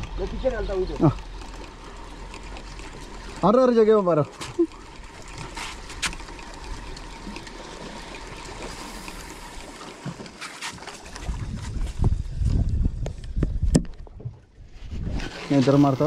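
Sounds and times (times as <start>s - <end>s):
water lapping against boat hull: 0.0s - 16.0s
wind buffeting microphone: 11.0s - 15.4s.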